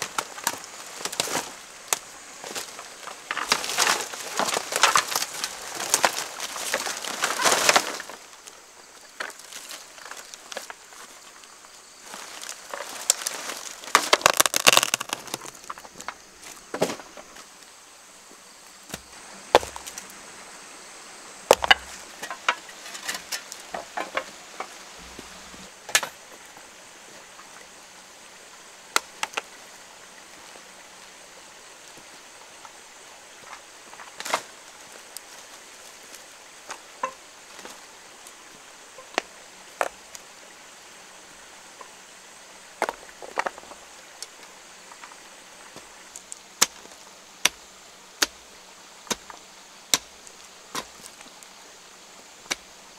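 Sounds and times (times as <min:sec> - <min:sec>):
dry thatch crunching: 0:00.0 - 0:08.3, 0:09.2 - 0:17.4, 0:18.9 - 0:20.1
hoe chopping into earth: 0:18.9 - 0:20.0, 0:21.5 - 0:22.0, 0:49.9 - 0:51.1.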